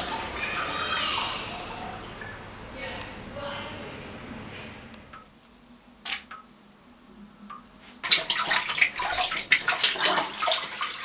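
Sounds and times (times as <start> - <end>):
toilet flushing: 0.0 - 2.7, 8.0 - 11.0.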